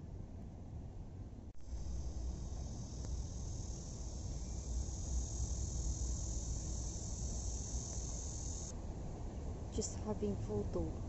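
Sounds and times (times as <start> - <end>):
insects singing: 1.6 - 8.7.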